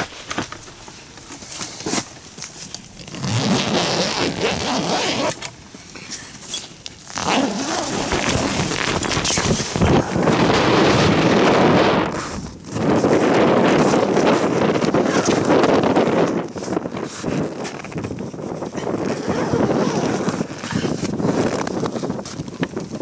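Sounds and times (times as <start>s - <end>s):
fabric scraping: 3.0s - 5.4s, 7.0s - 15.6s
tent zipper pulled open: 3.0s - 5.5s, 6.2s - 22.1s.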